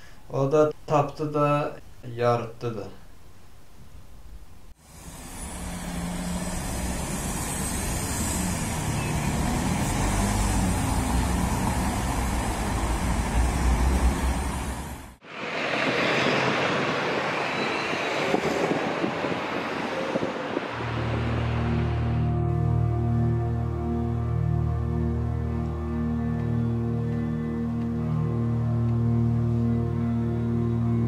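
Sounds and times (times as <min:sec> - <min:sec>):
hissy street ambience: 0:04.8 - 0:24.4
road traffic rumble: 0:04.8 - 0:31.0.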